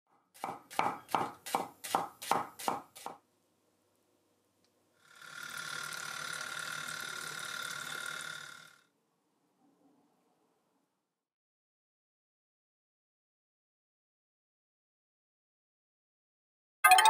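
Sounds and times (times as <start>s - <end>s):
knife chopping on wooden board: 0.4s - 3.2s.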